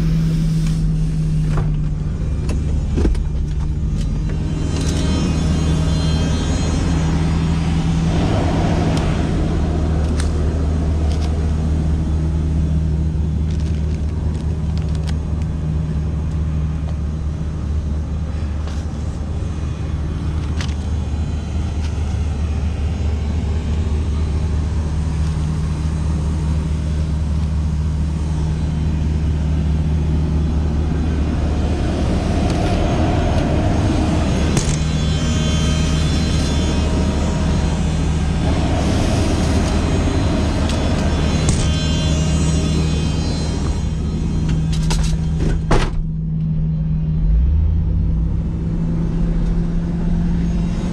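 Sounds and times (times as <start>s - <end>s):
truck engine drone: 0.0s - 50.9s.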